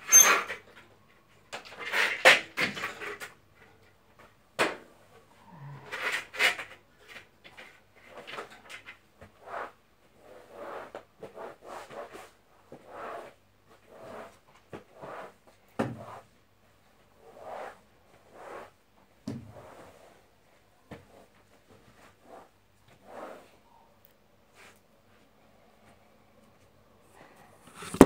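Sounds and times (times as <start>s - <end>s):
squeegee scraping floor: 21.0s - 23.8s, 27.3s - 28.0s.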